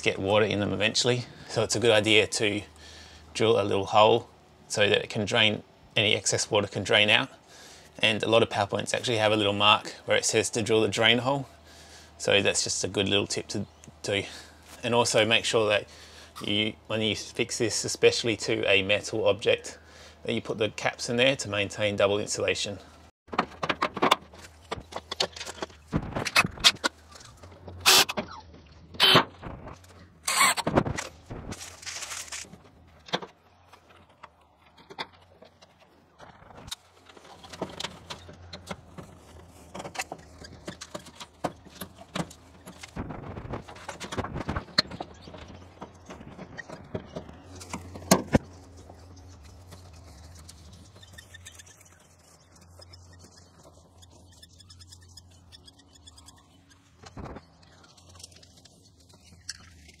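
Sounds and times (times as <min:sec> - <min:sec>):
sharp clicks and knocks: 0:23.3 - 0:31.6.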